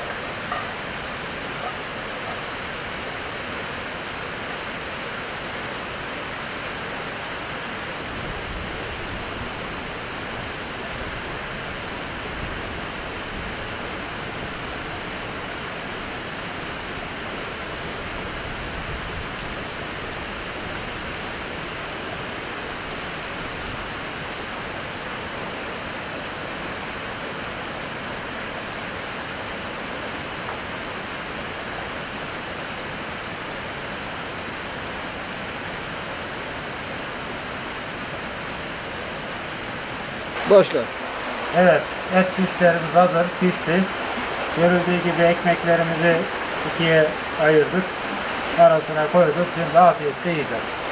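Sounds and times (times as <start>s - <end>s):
river water rushing: 0.0s - 50.9s.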